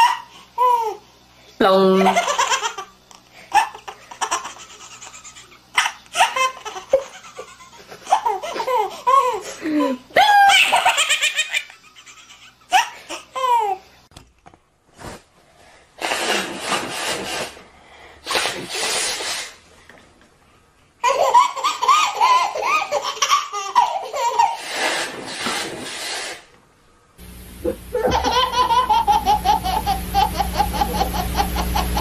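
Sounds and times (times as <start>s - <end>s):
baby laughing: 0.0s - 1.0s, 2.0s - 13.8s, 21.0s - 25.1s, 27.9s - 32.0s
steady low hum: 26.5s - 32.0s.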